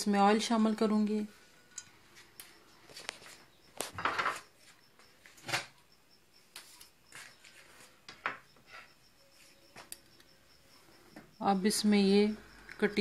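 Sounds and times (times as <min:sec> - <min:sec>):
dishes and utensils clattering: 0:03.9 - 0:04.4.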